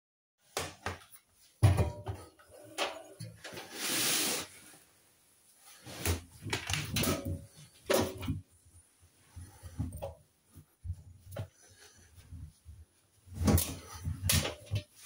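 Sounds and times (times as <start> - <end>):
laundry rustling: 1.1 - 15.0
laundry bumping washing machine drum: 1.6 - 2.2.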